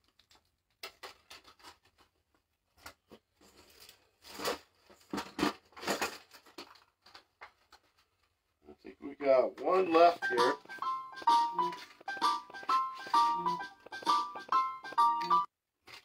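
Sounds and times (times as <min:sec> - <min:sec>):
packaging rustling and crinkling: 0:00.0 - 0:08.3.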